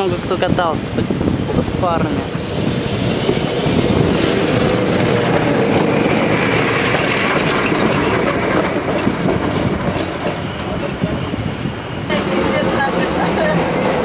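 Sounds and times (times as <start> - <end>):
tram wheels rumbling on rails: 0.0 - 14.0.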